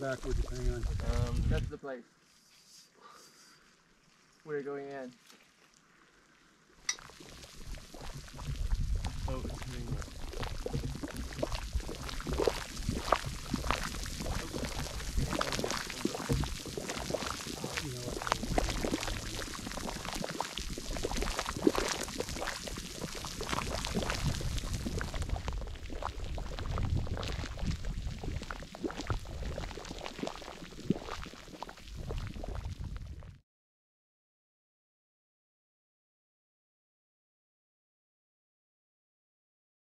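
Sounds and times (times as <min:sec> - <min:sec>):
hot spring water bubbling: 0:00.0 - 0:01.4, 0:03.8 - 0:33.3.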